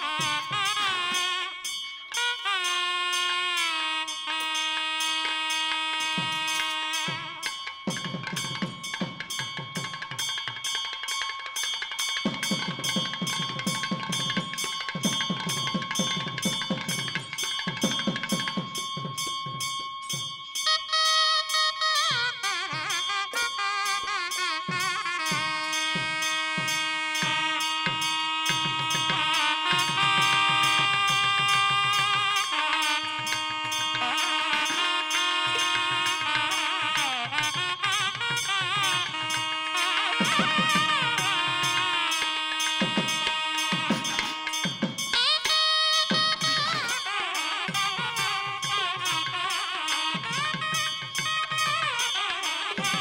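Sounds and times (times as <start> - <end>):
cymbal strokes: 0.0 - 53.0
steady drum beat: 0.0 - 53.0
long held note: 19.2 - 53.0.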